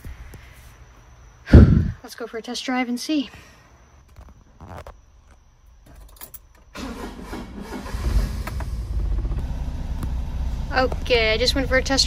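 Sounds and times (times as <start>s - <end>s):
engine cranking and starting: 6.7s - 11.1s.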